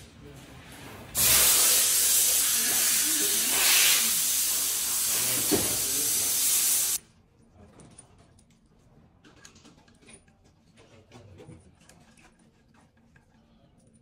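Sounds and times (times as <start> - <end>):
rushing air hiss: 1.2 - 7.0.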